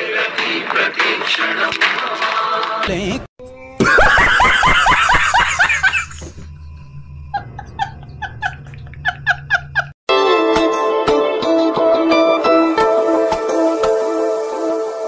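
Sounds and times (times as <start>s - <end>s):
music: 0.0s - 3.8s, 10.1s - 15.0s
high chirping laughter: 3.8s - 6.4s
person laughing: 3.8s - 6.5s, 7.3s - 10.0s.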